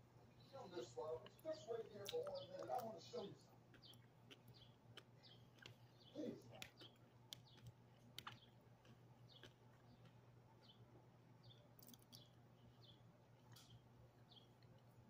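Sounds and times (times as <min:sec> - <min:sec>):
chewing mouth smacks: 0:01.2 - 0:10.8, 0:11.8 - 0:12.4.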